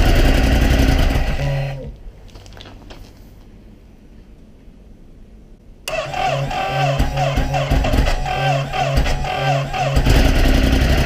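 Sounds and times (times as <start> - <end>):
motorcycle engine idling: 6.0 - 11.0.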